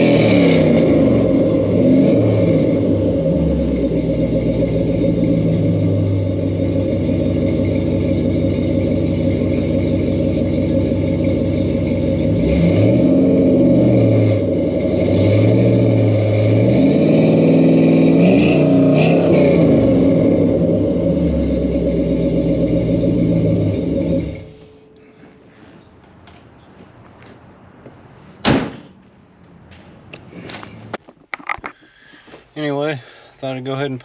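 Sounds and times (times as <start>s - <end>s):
car engine idling and revving: 0.0s - 25.0s.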